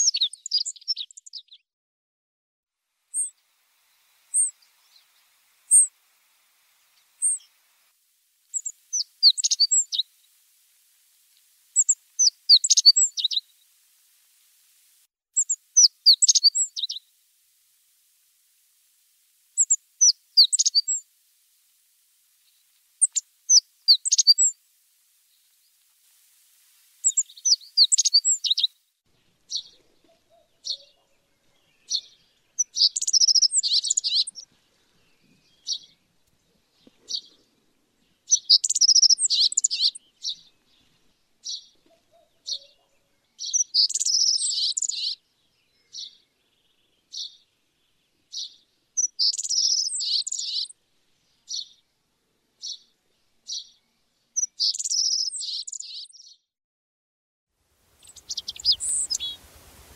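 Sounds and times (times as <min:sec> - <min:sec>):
bird song phrase: 0:00.0 - 0:01.6, 0:15.4 - 0:17.0, 0:27.0 - 0:51.9, 0:52.6 - 0:56.5, 0:58.0 - 0:59.4
high bird call notes: 0:58.0 - 0:59.9.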